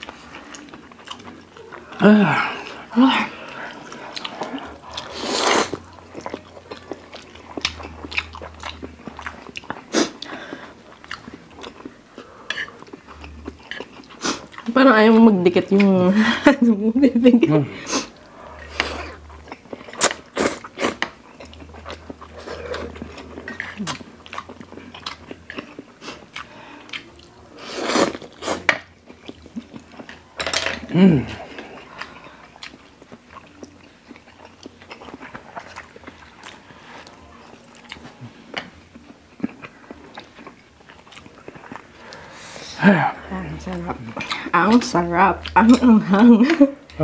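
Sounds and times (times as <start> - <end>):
people chewing noodles: 0.0 - 47.0
slurping noodles: 3.5 - 5.8
loud slurp: 5.0 - 5.8.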